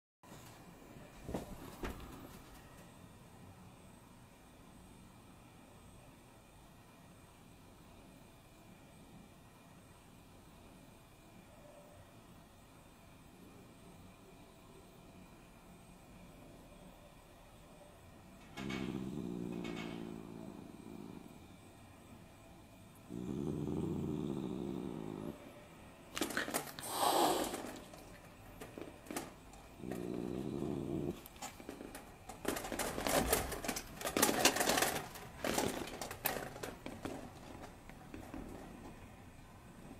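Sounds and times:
cat growling: 18.5 - 21.6, 22.9 - 25.6, 26.2 - 28.2, 29.7 - 32.0.

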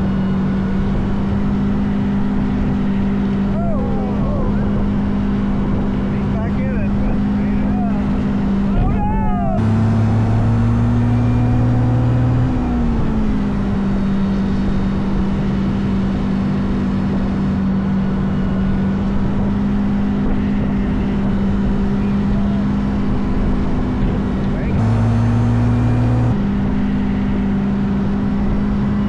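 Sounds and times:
engine running steadily: 0.0 - 29.0.

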